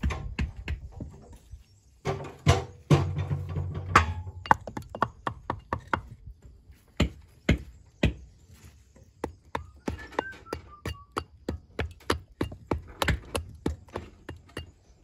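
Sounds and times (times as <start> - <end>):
hammers striking stone: 4.4 - 6.2, 7.0 - 8.3, 9.2 - 15.0.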